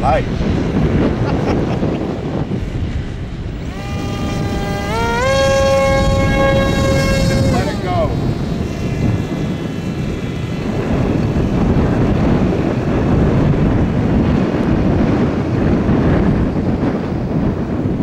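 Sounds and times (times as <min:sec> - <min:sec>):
wind buffeting microphone: 0:00.0 - 0:18.0
electric motor whine: 0:02.5 - 0:15.1.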